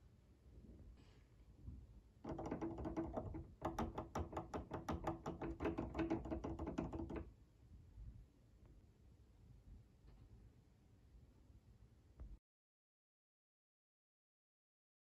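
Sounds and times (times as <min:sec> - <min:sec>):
turntable tonearm rattling clicks: 0:02.3 - 0:07.2.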